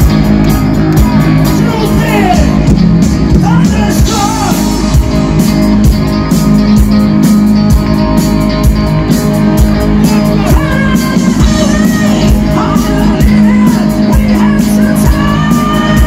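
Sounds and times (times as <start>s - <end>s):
drum beat: 0.0s - 16.0s
electric guitar: 0.0s - 16.0s
man singing into a microphone: 10.5s - 16.0s.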